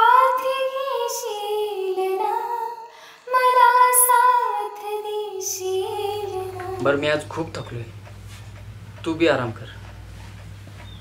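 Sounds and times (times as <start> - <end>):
woman singing: 0.0 - 7.1.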